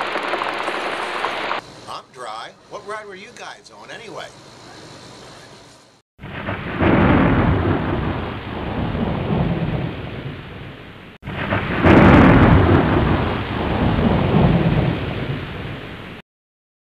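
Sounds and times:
thunder rumbling: 0:00.0 - 0:01.6, 0:06.2 - 0:16.2
steady rain: 0:00.0 - 0:01.9, 0:06.2 - 0:16.2.

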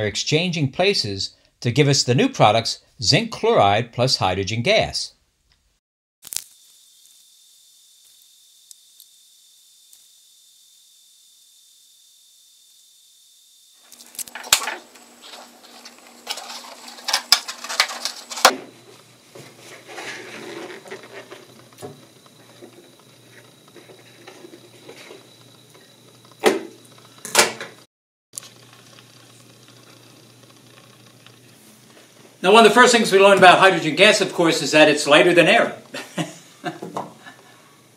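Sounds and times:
hands rubbing a latex balloon: 0:19.4 - 0:21.5.

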